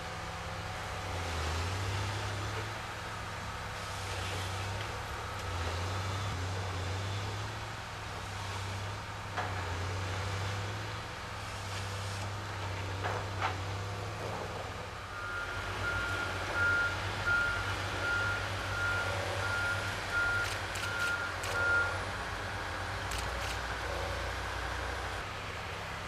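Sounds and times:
diesel engines running: 0.0 - 26.0
reversing alarm beeping: 15.1 - 22.0.

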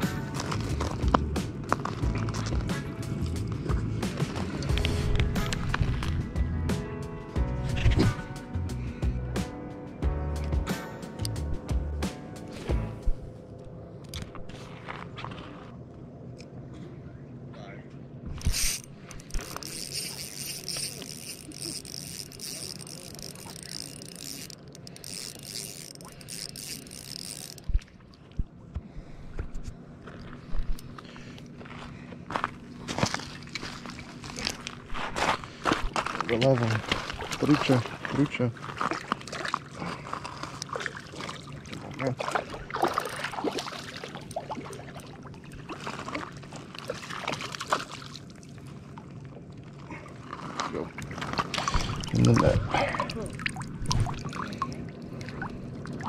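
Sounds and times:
fishing reel whirring: 18.3 - 27.8, 42.6 - 44.4
water splashing and trickling: 18.4 - 28.4, 36.2 - 56.0.

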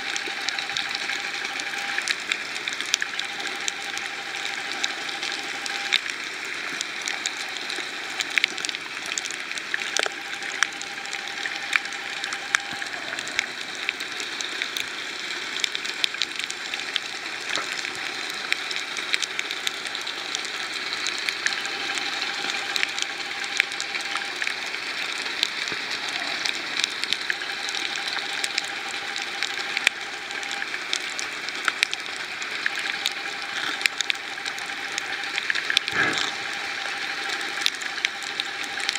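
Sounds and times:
faint hum: 0.0 - 38.9
sharp clicks and crackles: 0.0 - 38.9
underwater hiss: 35.8 - 37.3.

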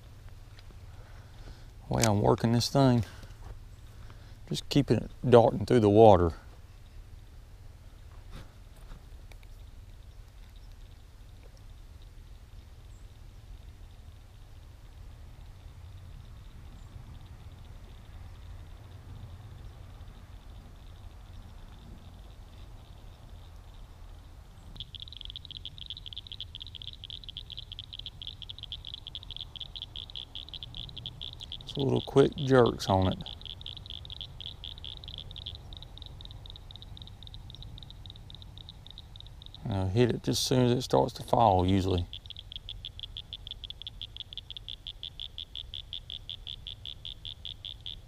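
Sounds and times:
frog trilling: 19.6 - 48.0.

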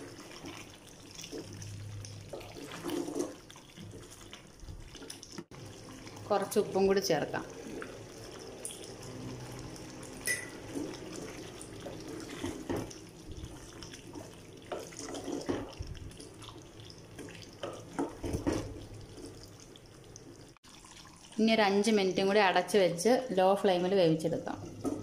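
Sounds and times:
spatula stirring thick curry: 0.0 - 19.8.

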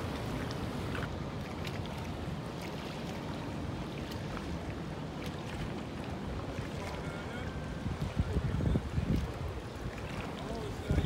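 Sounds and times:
boat engine low rumble: 0.0 - 11.0
faint water lapping: 0.0 - 11.0
wind on microphone: 5.6 - 11.0.

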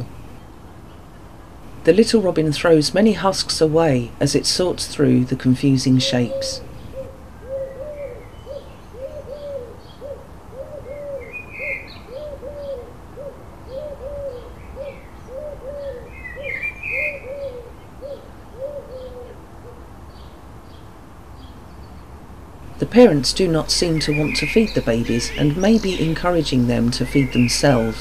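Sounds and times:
small birds chirping: 0.0 - 28.0
pigeon cooing: 6.0 - 19.8.

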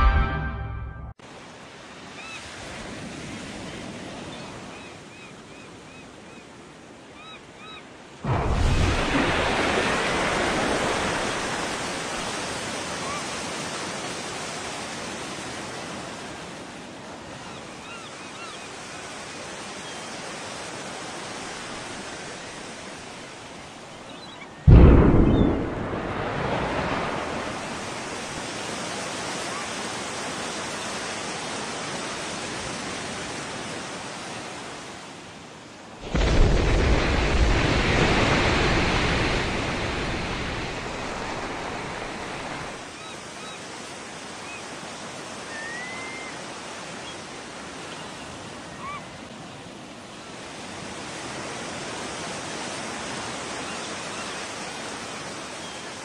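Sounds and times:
loud low explosion rumble: 8.3 - 9.6, 24.7 - 26.8.

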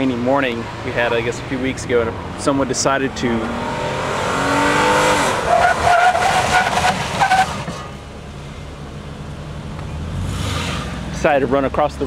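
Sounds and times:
low steady vehicle rumble: 0.0 - 4.4, 5.3 - 12.0
tyres squealing: 4.9 - 7.9.

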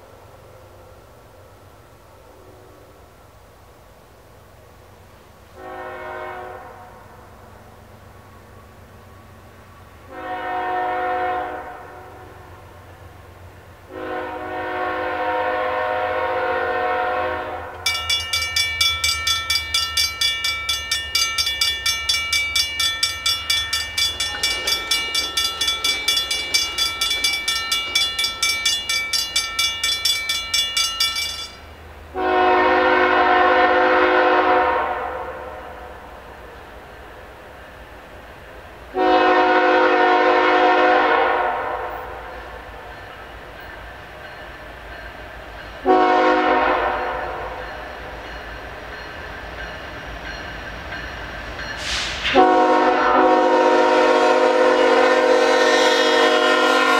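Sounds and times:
locomotive horn blasts: 5.6 - 7.0, 10.1 - 12.5, 13.9 - 17.8, 32.1 - 35.6, 38.9 - 42.2, 45.8 - 47.6, 52.3 - 56.9
crossing bell ringing: 17.8 - 31.9, 42.2 - 51.9.

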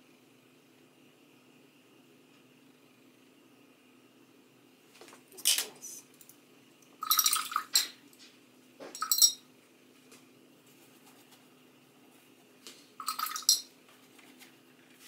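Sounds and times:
paintbrush clinking against container: 9.0 - 9.4, 13.0 - 13.7.

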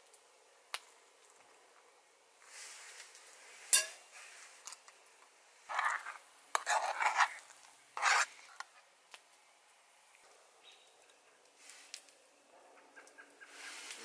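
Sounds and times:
metal clink: 3.7 - 4.0
utensil scraping metal tin: 5.7 - 8.6.

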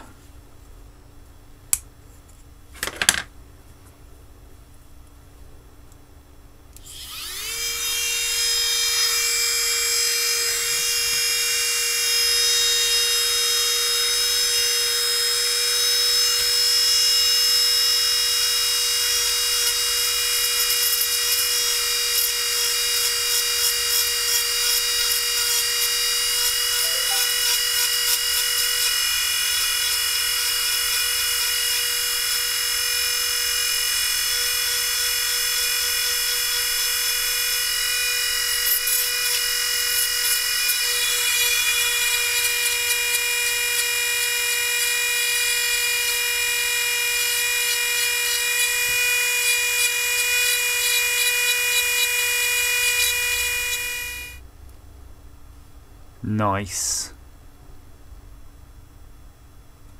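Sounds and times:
rotary tool whining: 6.8 - 54.4.

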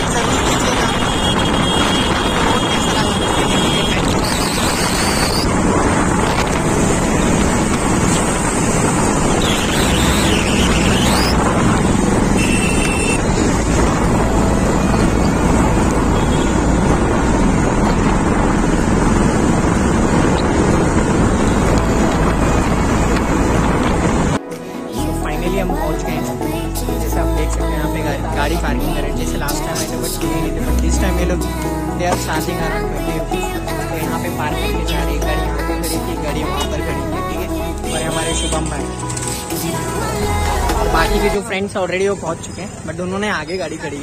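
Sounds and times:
wind buffeting microphone: 0.0 - 12.4, 13.2 - 24.4
traffic engine and tyre noise: 0.0 - 25.0, 27.0 - 44.0.

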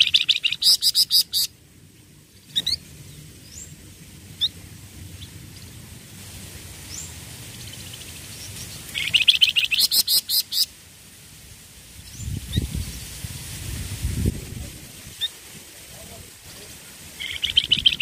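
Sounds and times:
songbird singing: 0.0 - 10.8, 12.0 - 13.6, 14.7 - 18.0
faint bird chirps: 17.2 - 18.0.

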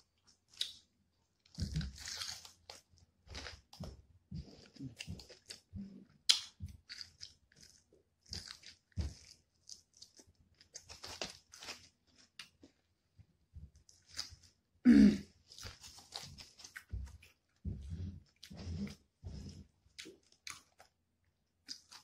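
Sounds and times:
wet chewing: 4.4 - 12.7, 15.5 - 21.0, 21.6 - 22.0.

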